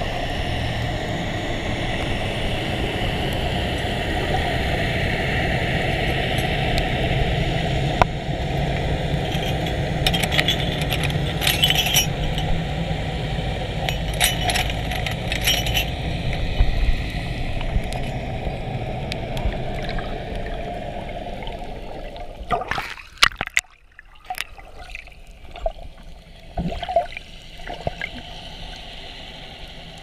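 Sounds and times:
low underwater noise: 0.0s - 30.0s
chain links clinking underwater: 6.0s - 6.7s, 8.5s - 12.6s, 13.8s - 16.5s, 17.8s - 18.2s.

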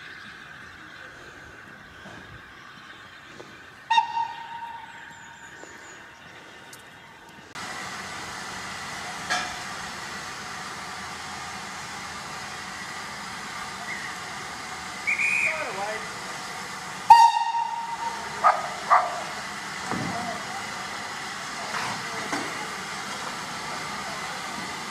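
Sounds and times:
steam whistle blasts: 3.9s - 4.9s, 15.0s - 15.7s, 17.1s - 18.2s
steam locomotive hissing: 7.5s - 24.9s
high whistle: 15.0s - 15.7s.

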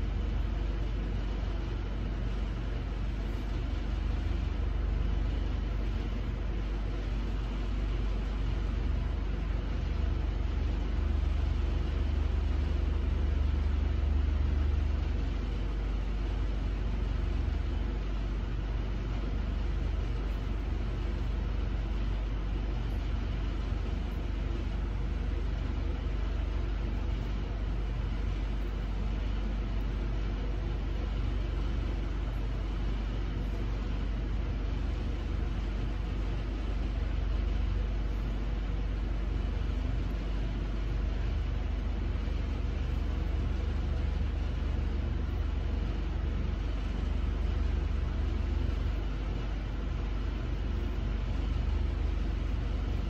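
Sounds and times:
constant noise haze: 0.0s - 53.0s.

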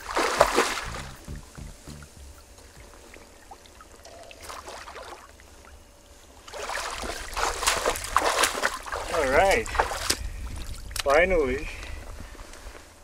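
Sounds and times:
water splashing and sloshing: 0.0s - 1.1s, 2.4s - 11.0s
low wind rumble: 7.2s - 13.0s.

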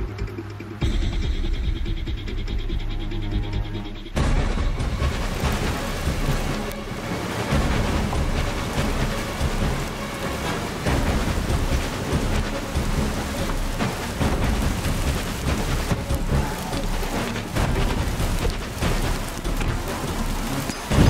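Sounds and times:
low rumbles: 0.0s - 21.0s
steady rushing noise: 3.8s - 21.0s.

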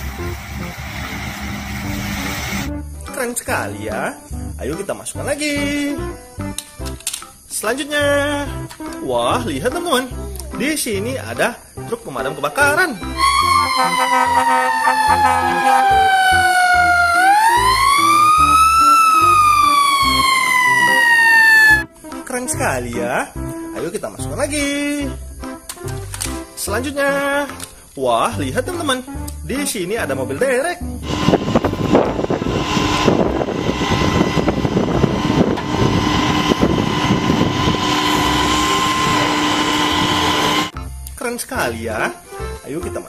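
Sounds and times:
diesel engine running under load: 0.0s - 2.7s, 31.0s - 40.8s
fire truck siren wailing: 13.1s - 21.9s, 31.0s - 40.8s
thin steady whine: 13.2s - 21.8s, 31.0s - 40.8s.

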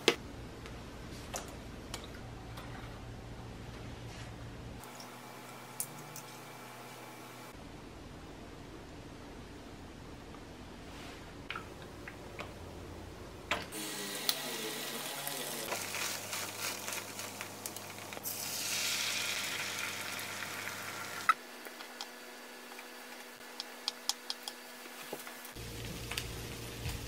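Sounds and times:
egg sizzling in a frying pan: 13.8s - 21.4s.

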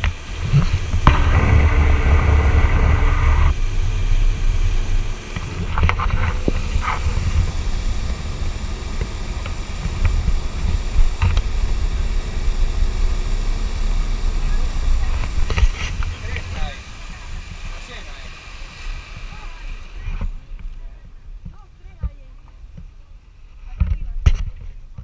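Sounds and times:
water spray rushing: 0.0s - 20.9s
motorboat engine: 0.0s - 22.0s
wind buffeting microphone: 0.0s - 23.2s.

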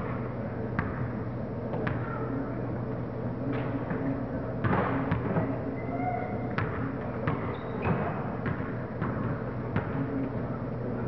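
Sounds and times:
steady low hum: 0.0s - 11.0s
sneakers squeaking on court: 1.7s - 2.4s, 3.5s - 10.5s.

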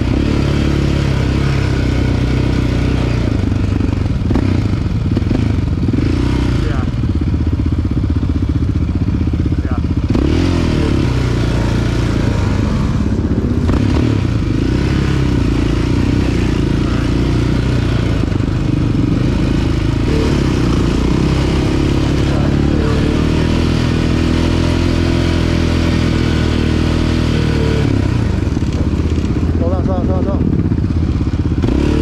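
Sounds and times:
atv engine running: 0.0s - 32.0s.

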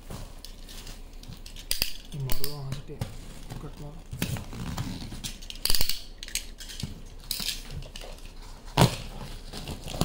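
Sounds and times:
packaging crackling and rustling: 6.6s - 10.0s.

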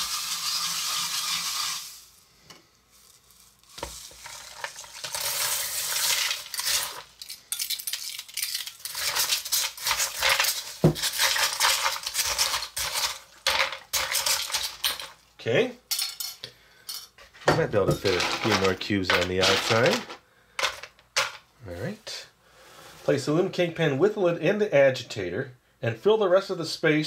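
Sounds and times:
ice crackling and hissing in brine: 0.0s - 15.5s
ice cubes clinking and clattering: 3.0s - 15.2s, 17.9s - 21.4s.

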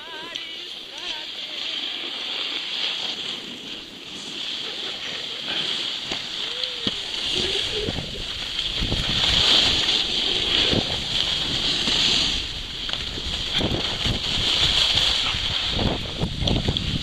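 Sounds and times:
skis scraping over snow: 0.0s - 17.0s
wind rushing over microphone: 3.6s - 17.0s.

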